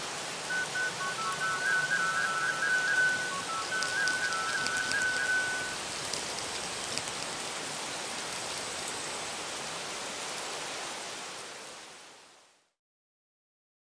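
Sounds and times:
rain hiss: 0:00.0 - 0:12.8
raindrop ticks: 0:00.7 - 0:07.4.

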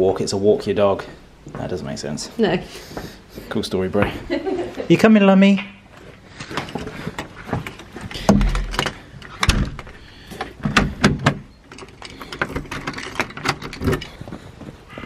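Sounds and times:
door thumping shut: 0:08.2 - 0:09.9, 0:10.6 - 0:11.5.

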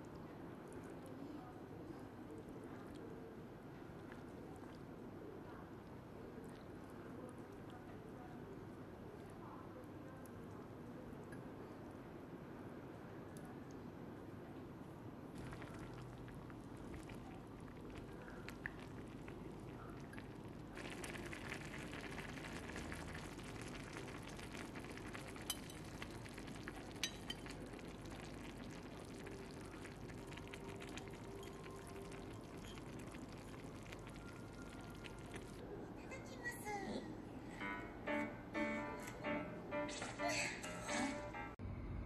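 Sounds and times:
soup bubbling in saucepan: 0:15.3 - 0:35.6
spoon clinking against pot: 0:27.0 - 0:27.5.

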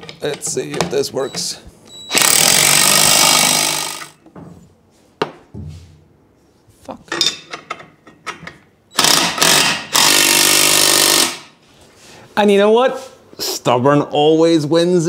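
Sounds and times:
metal clicks and knocks: 0:00.0 - 0:01.4, 0:07.1 - 0:08.7
power tool bursts: 0:02.1 - 0:04.2, 0:08.9 - 0:11.5.

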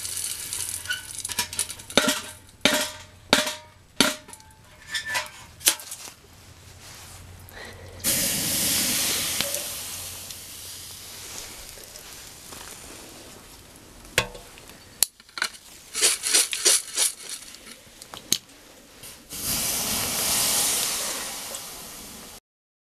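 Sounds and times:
water hissing on hot char: 0:00.0 - 0:02.7, 0:06.8 - 0:14.9, 0:19.0 - 0:22.4.

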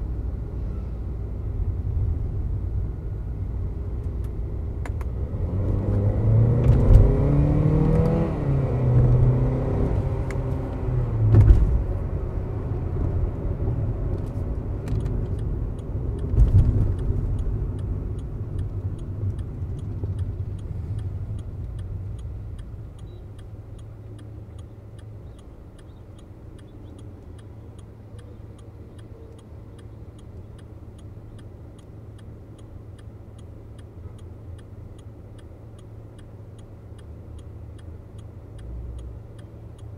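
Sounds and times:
road noise: 0:00.0 - 0:39.9
turn indicator ticking: 0:04.0 - 0:11.5, 0:12.2 - 0:39.9
car engine revving: 0:05.0 - 0:13.0.

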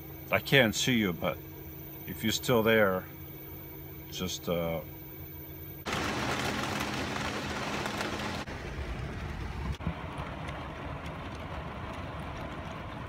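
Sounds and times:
heavy rain on vehicle roof: 0:05.9 - 0:13.0.

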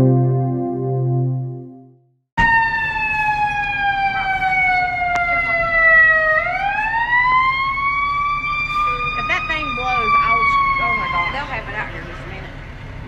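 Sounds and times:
emergency siren wailing: 0:02.4 - 0:12.2.

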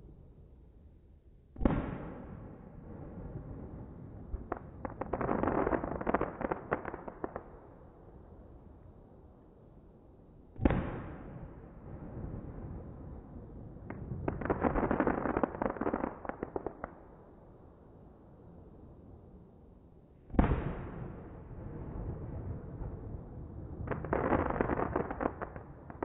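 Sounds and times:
firework booms: 0:01.6 - 0:02.5, 0:10.6 - 0:12.8, 0:20.3 - 0:26.0
firework crackling pops: 0:04.4 - 0:07.6, 0:13.9 - 0:17.0, 0:23.9 - 0:26.0.

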